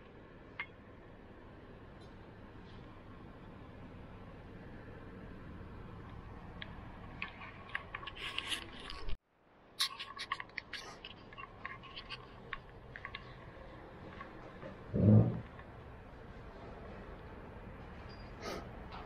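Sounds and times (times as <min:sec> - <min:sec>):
steady low hum: 0:00.0 - 0:19.0
light clicks and scrapes: 0:06.6 - 0:09.2, 0:09.8 - 0:14.8.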